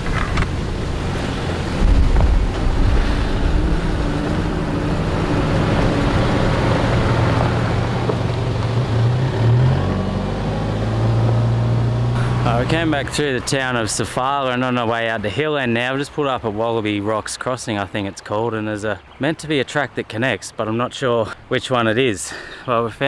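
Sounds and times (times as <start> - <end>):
wind on microphone: 0.0 - 9.1
vehicle engine hum: 0.0 - 15.3.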